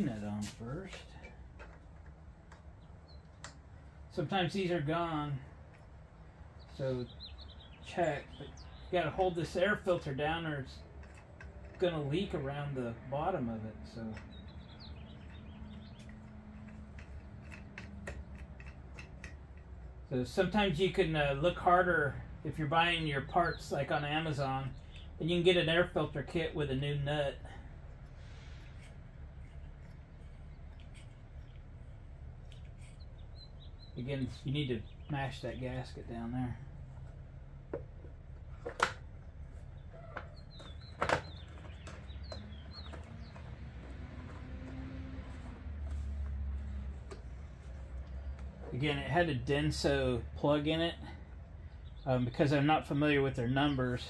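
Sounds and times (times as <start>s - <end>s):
small bird chirping: 6.5s - 9.6s, 14.0s - 18.8s, 28.1s - 37.2s, 39.2s - 45.5s
wing nut squeaking and clicking: 10.8s - 12.1s, 14.1s - 20.0s, 37.8s - 45.6s
steady low hum: 22.4s - 52.5s.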